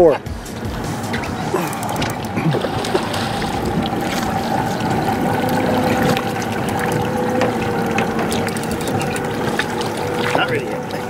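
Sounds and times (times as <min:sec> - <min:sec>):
boat motor running: 0:00.0 - 0:11.0
water splashing against hull: 0:00.0 - 0:11.0.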